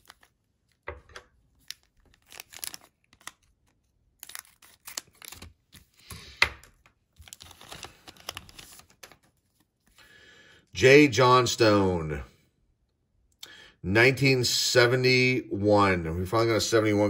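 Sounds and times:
wrapper tearing and crinkling: 0.0 - 0.4, 1.5 - 6.0, 7.1 - 9.4.

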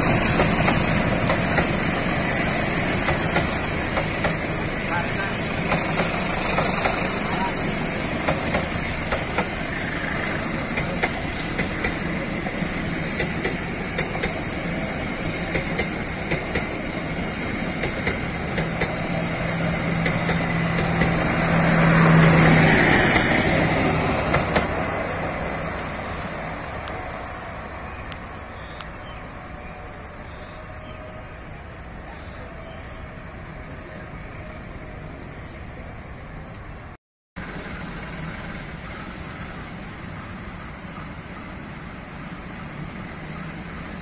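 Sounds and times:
train wheels clacking: 0.0 - 21.4, 22.0 - 24.9
train rumble: 0.0 - 44.0.

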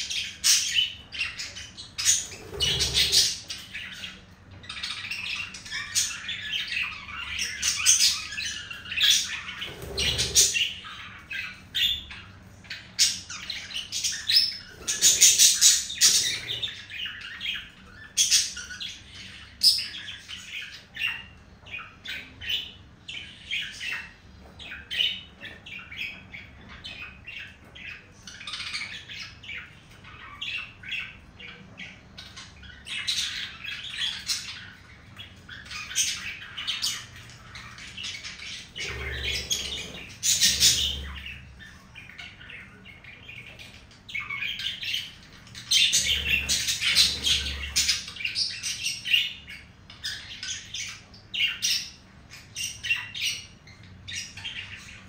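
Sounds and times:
budgerigars chattering: 0.0 - 55.0.

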